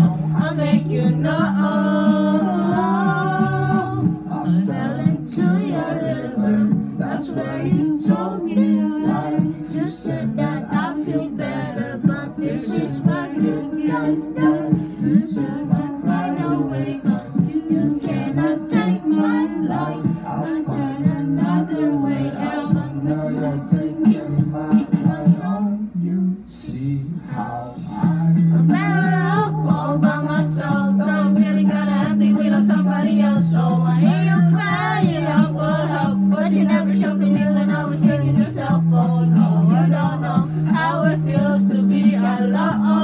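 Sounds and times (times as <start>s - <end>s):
backing track with steady beat: 0.0s - 43.0s
boy singing into a microphone: 0.0s - 43.0s.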